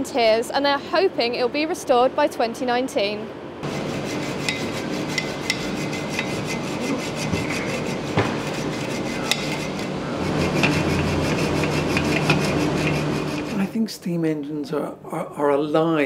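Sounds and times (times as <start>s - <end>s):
low workshop hum: 0.0s - 16.0s
hacksaw rasping through steel: 3.6s - 13.6s.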